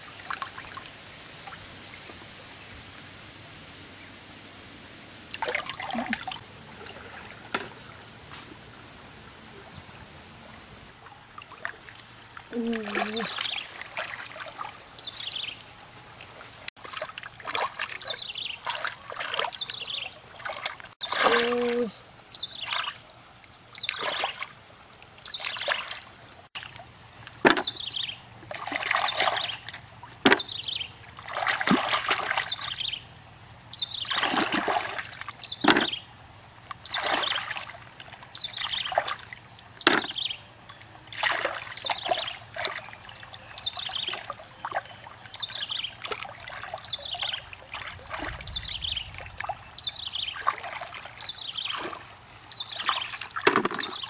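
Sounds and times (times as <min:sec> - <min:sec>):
hands splashing in shallow water: 0:31.2 - 0:32.7.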